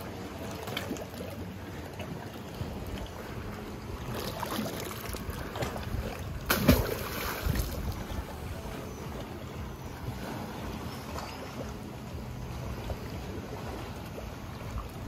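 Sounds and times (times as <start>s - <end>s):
low rumble of boat and water: 0.0s - 15.0s
person splashing into water: 6.4s - 7.8s.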